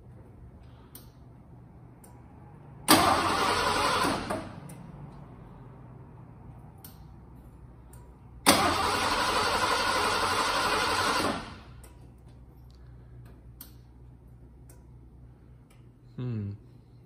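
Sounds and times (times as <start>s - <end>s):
engine cranking by starter: 2.8s - 4.8s, 8.4s - 11.8s.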